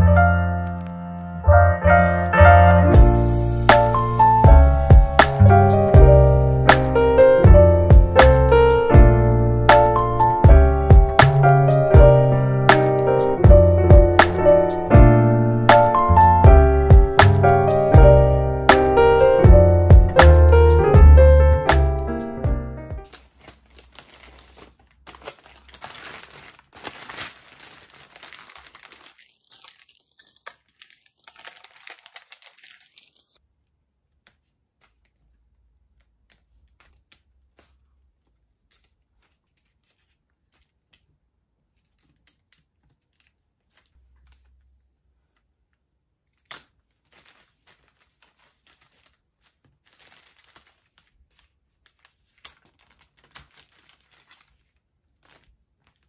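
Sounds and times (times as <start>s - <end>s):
wrapping paper crinkling and tearing: 3.0s - 5.9s, 23.0s - 33.4s, 34.1s - 44.7s, 46.3s - 56.0s.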